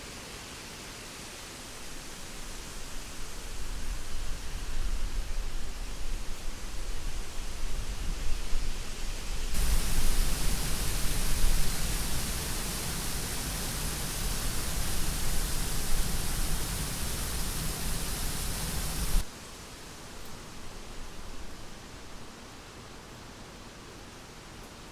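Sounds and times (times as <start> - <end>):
background hiss with low rumble: 0.0 - 24.9
waterfall rushing over rocks: 9.6 - 19.3.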